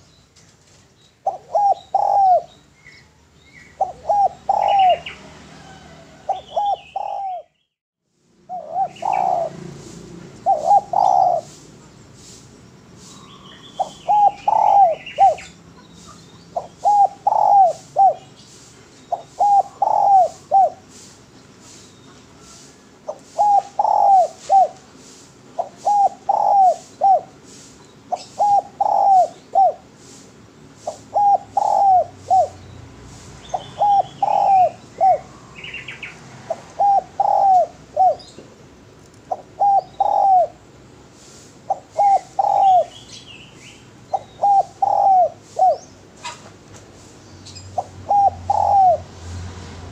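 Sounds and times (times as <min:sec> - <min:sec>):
dove cooing: 0:01.2 - 0:02.5, 0:03.6 - 0:07.5, 0:08.4 - 0:11.9, 0:13.5 - 0:18.4, 0:19.0 - 0:21.0, 0:22.3 - 0:30.2, 0:30.8 - 0:32.7, 0:33.4 - 0:43.1, 0:44.0 - 0:46.6, 0:47.6 - 0:49.4.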